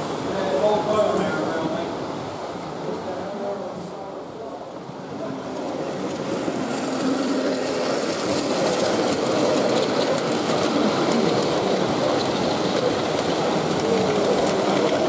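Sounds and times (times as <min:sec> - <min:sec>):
model train running: 0:02.8 - 0:15.0
wheels clicking on rails: 0:05.1 - 0:15.0.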